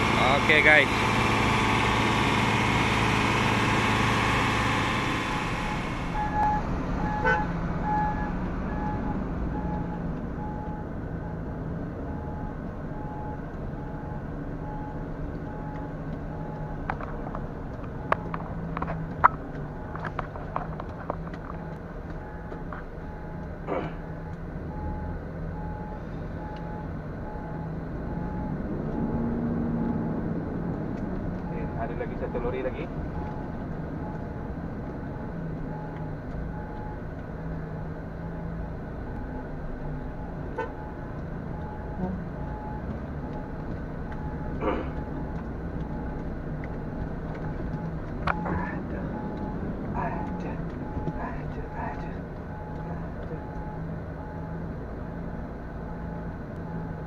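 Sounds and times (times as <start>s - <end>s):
heavy diesel engine running: 0.0s - 9.6s, 25.5s - 57.0s
truck engine heard from cab: 0.0s - 57.0s
high repeating beep: 47.8s - 54.6s.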